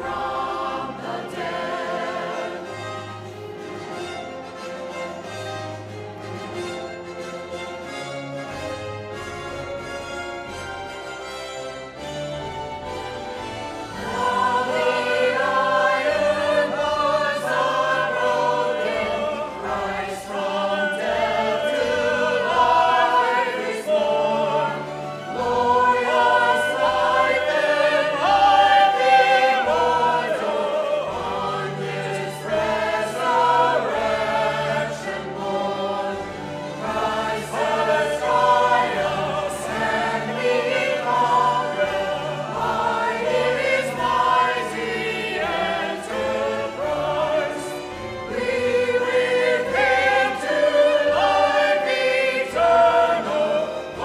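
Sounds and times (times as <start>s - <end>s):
church choir singing: 0.0s - 54.0s
instrumental accompaniment: 0.0s - 54.0s.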